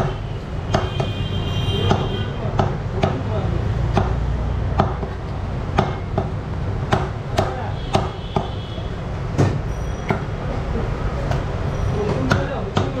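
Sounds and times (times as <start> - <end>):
cleaver chopping on wooden block: 0.7 - 1.2, 1.8 - 3.2, 3.9 - 4.2, 4.8 - 8.6, 12.1 - 13.0.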